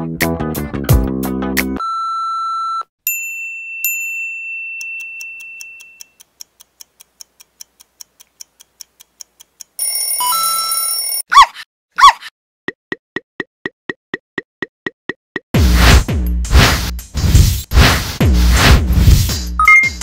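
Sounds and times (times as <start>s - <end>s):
clock ticking: 4.8s - 10.2s
alarm clock bell ringing: 9.8s - 11.2s
dog bark: 11.3s - 12.3s
short beep: 19.6s - 20.0s.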